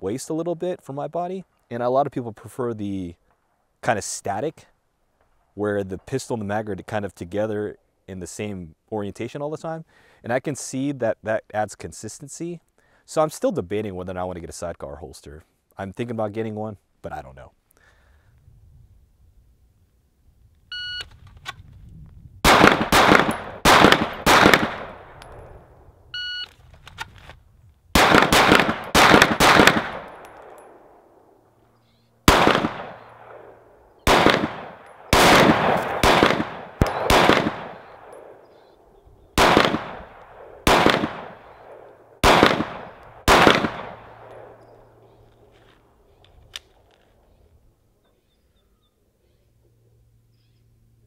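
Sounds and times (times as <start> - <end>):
short high beep: 20.7 - 21.1, 26.2 - 26.5
pistol shots with ringing tail: 22.4 - 25.8, 28.0 - 31.4, 32.2 - 45.2.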